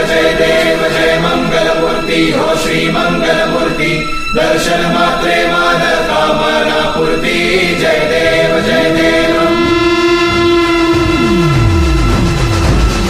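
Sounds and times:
voices chanting over held notes: 0.0 - 12.7
held synth note with pitch sweeps: 2.7 - 13.0.

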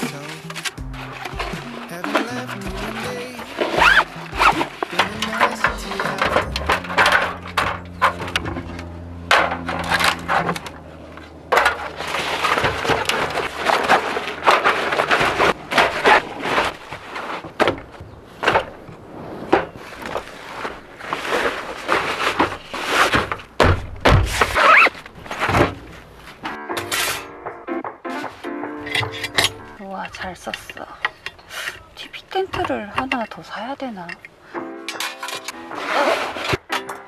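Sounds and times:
paper bag crinkling: 0.0 - 8.3, 9.6 - 23.6
metal panels clanking: 0.0 - 37.0.

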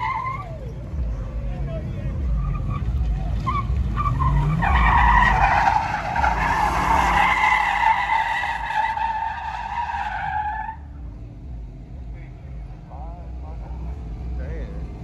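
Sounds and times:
tires squealing: 0.0 - 11.1
car engine revving: 0.0 - 15.0.

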